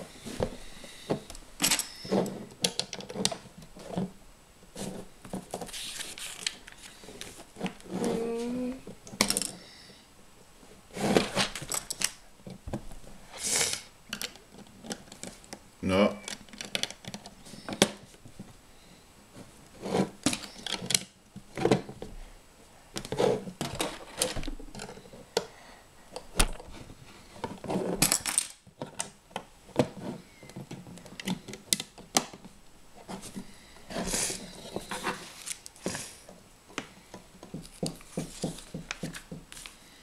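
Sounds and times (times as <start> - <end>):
rustling of pieces: 0.0 - 9.7, 10.9 - 15.6, 23.0 - 25.5, 26.1 - 40.0
plastic bricks clicking and clattering: 16.3 - 18.0, 27.4 - 29.2.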